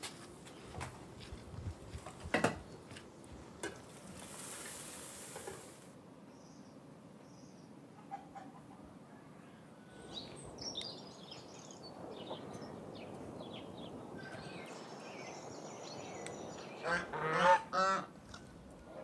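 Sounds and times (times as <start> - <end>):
small birds chirping: 10.0 - 17.0
geese honking: 16.8 - 18.1.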